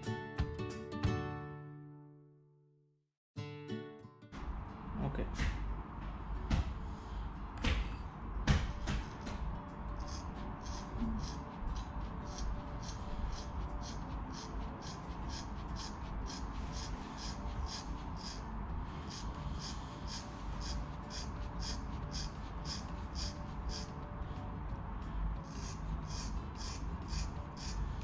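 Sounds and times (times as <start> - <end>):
scissors snipping hair: 10.0 - 18.4.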